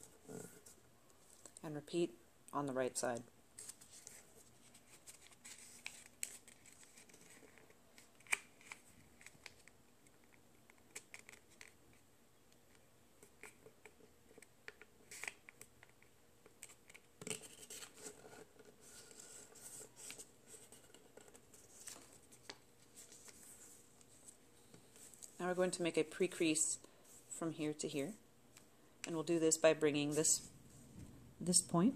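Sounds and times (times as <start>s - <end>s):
paper rustling and creasing: 3.6s - 12.0s, 14.3s - 25.4s.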